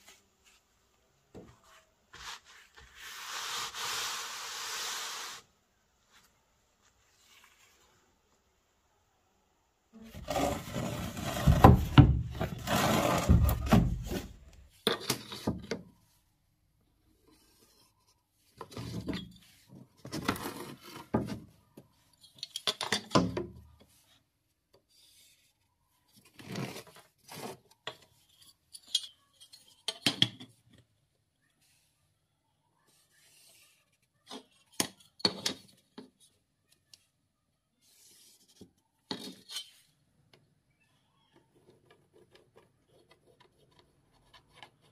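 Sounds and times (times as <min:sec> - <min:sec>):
plank scraping on floor: 0:10.1 - 0:14.4.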